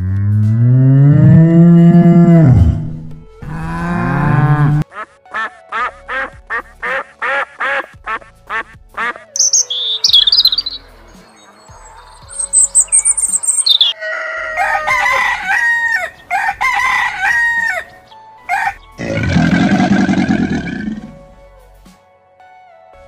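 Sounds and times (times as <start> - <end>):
cow mooing: 0.0 - 4.8, 19.0 - 21.2
short rapid calls: 9.0 - 13.9
high bird chirps: 9.4 - 14.0.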